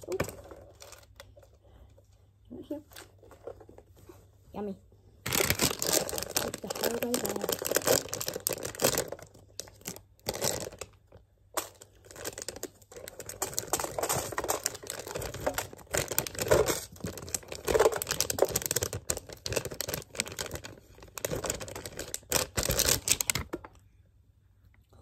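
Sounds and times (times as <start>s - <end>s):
plastic bag crinkling: 0.0s - 1.8s, 5.2s - 23.8s.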